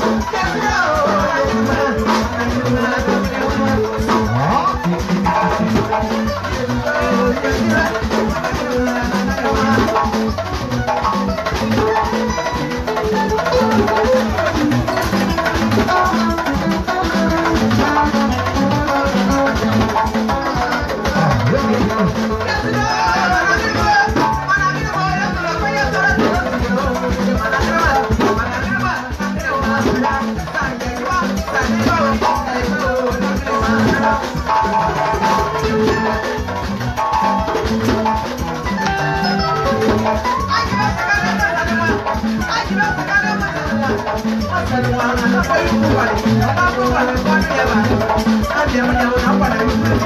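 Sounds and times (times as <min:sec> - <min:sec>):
live music with drum beat: 0:00.0 - 0:50.0
rattling percussion: 0:00.0 - 0:50.0
woman singing into a microphone: 0:38.8 - 0:50.0.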